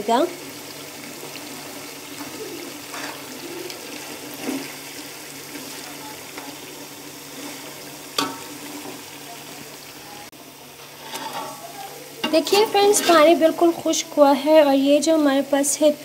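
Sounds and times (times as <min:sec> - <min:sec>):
meat bubbling and sizzling in pot: 0:00.0 - 0:16.0
steel spatula scraping a pot: 0:03.9 - 0:04.8, 0:07.3 - 0:09.0, 0:11.0 - 0:11.6, 0:12.2 - 0:13.4.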